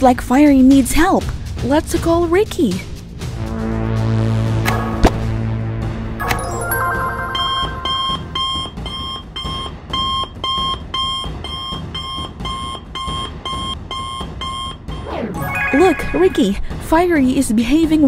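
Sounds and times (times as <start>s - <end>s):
short electronic chime: 6.2s - 8.8s, 15.4s - 16.7s
electronic alarm beeping: 6.2s - 16.6s.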